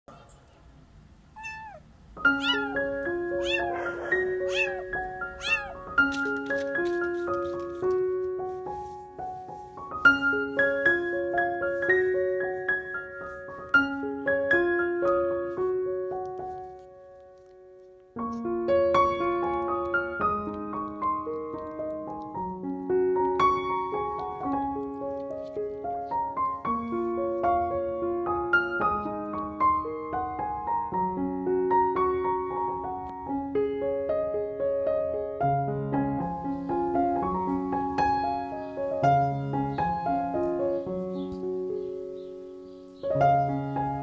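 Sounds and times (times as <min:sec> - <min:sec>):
kitten meowing: 0:01.3 - 0:06.2
gentle piano melody: 0:01.4 - 0:44.0.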